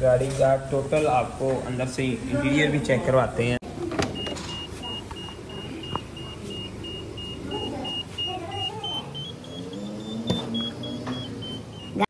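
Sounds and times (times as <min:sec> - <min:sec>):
car warning chime beeping: 0:04.1 - 0:12.0.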